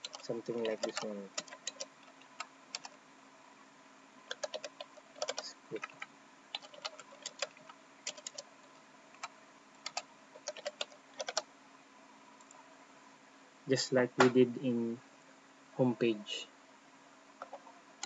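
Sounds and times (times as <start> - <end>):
keyboard typing: 0.0 - 3.0, 4.3 - 11.5, 17.4 - 17.7
faint steady hum: 0.0 - 18.0.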